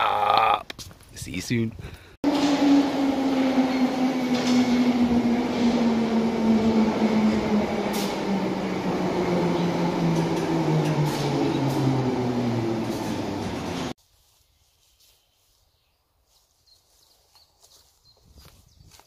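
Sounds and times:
wheel and rail rumble: 0:02.2 - 0:14.0
train motor whine falling: 0:02.3 - 0:13.9.

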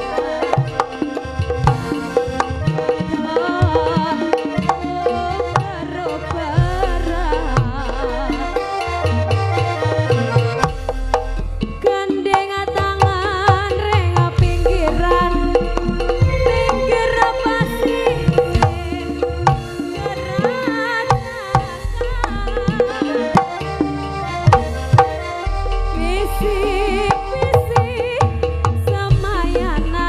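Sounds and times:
woman singing into a microphone: 0:00.0 - 0:10.4, 0:11.7 - 0:30.0
gamelan music: 0:00.0 - 0:13.1, 0:13.7 - 0:30.0
hand drums: 0:00.0 - 0:30.0
deep bass: 0:06.6 - 0:11.9, 0:14.4 - 0:19.7, 0:24.2 - 0:27.4.

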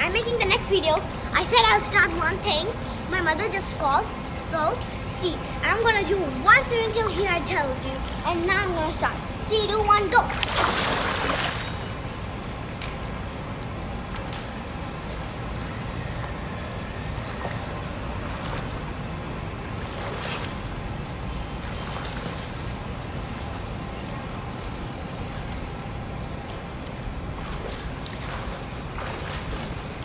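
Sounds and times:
water splashing: 0:04.8 - 0:12.4, 0:13.6 - 0:30.0
swimming kicks and strokes splashing: 0:10.2 - 0:30.0.

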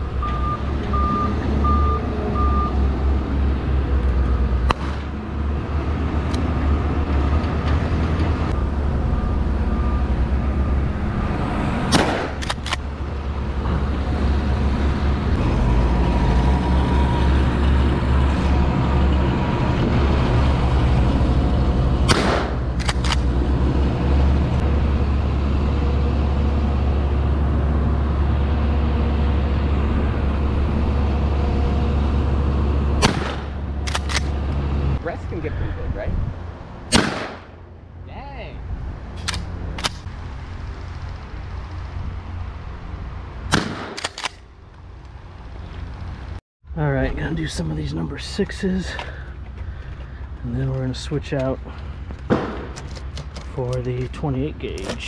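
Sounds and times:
diesel tractor engine running: 0:00.0 - 0:35.6
reversing alarm beeping: 0:00.2 - 0:02.8, 0:08.5 - 0:10.9
sharp cracks or knocks: 0:11.9 - 0:12.8, 0:22.1 - 0:23.3, 0:33.0 - 0:34.3, 0:52.3 - 0:53.5.

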